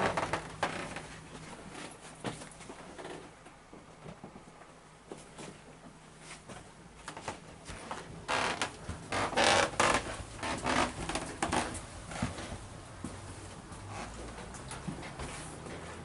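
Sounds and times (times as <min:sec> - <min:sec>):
scuffing footsteps: 0:06.2 - 0:16.0.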